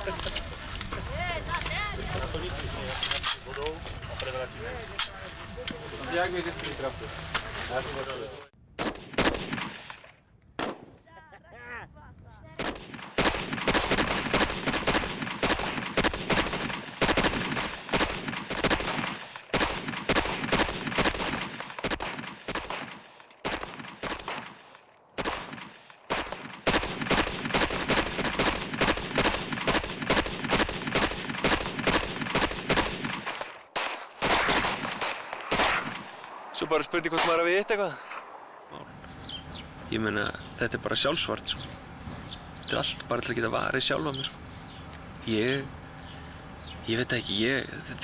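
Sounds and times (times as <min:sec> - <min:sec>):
rapid gunfire: 0:08.8 - 0:10.0, 0:12.6 - 0:36.4.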